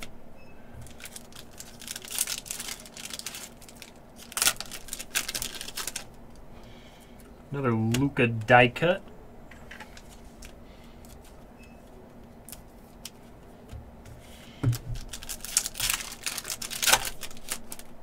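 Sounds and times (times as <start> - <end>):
foil wrapper crinkling and tearing: 0.8 - 6.2, 14.7 - 18.0.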